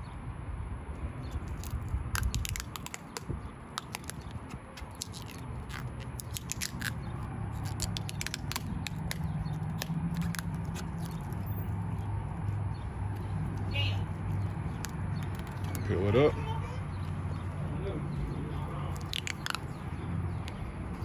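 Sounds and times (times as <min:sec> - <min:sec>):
rubber coating peeling and crackling: 0:01.3 - 0:17.5, 0:18.9 - 0:21.0.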